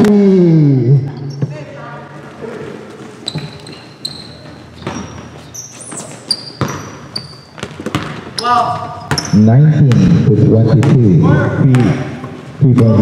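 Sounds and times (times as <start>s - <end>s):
sneakers squeaking on gym floor: 2.6s - 9.6s, 11.8s - 13.0s
basketball bouncing: 4.6s - 5.4s, 6.4s - 13.0s.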